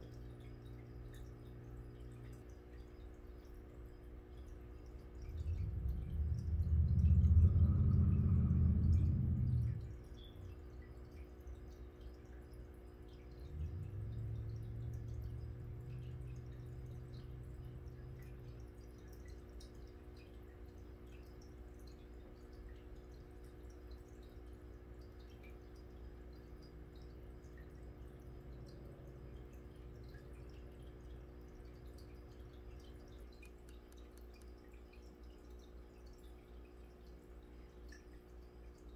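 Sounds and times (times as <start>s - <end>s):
steady hum: 0.0s - 21.5s
aquarium water trickling: 0.0s - 38.9s
low rumble: 4.4s - 11.2s, 13.3s - 18.7s.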